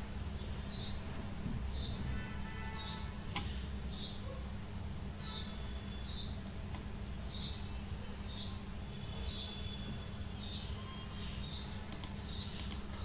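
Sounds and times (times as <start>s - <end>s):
sharp clicks: 11.9s - 12.9s.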